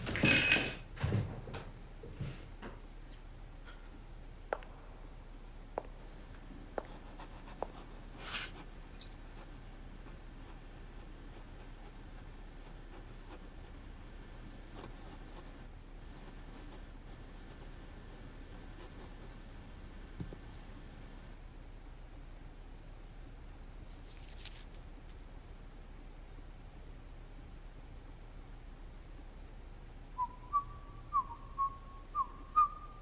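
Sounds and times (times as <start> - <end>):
pen scratching on paper: 6.8 - 19.4.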